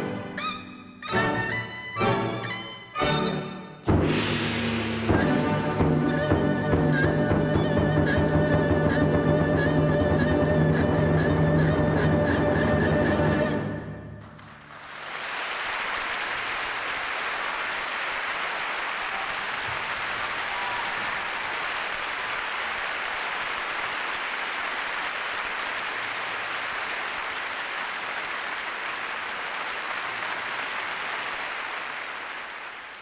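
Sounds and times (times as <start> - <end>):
audience applauding: 14.2 - 33.0.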